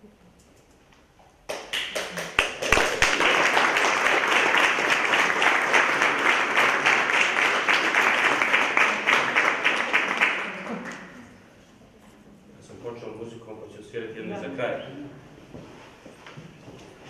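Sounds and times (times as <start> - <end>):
audience applauding: 1.5 - 11.3.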